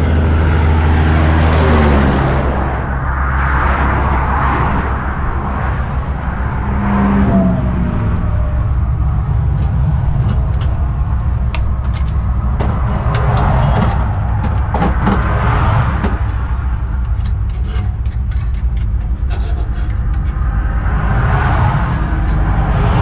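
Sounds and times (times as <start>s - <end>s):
highway traffic rumble: 0.0s - 23.0s
metallic clicks and clinks: 9.0s - 20.4s.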